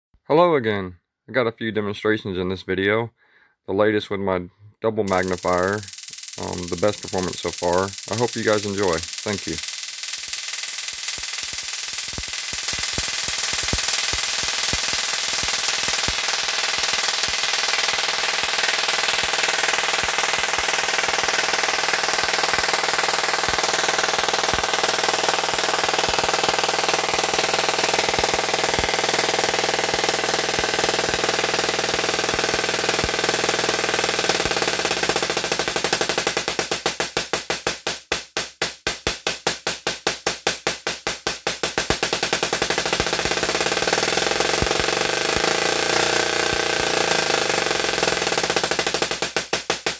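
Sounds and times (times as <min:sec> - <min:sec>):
tesla coil electrical buzz: 0:05.1 - 0:49.9.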